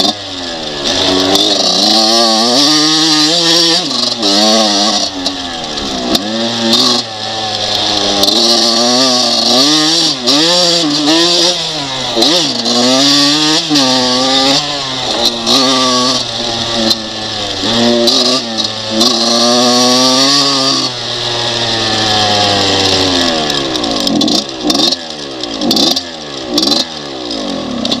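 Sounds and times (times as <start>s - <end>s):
two-stroke motorcycle revving: 0.0s - 28.0s.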